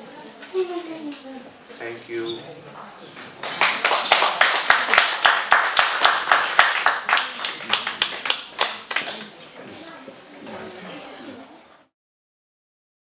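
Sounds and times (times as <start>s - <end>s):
small audience applauding: 3.4s - 9.4s.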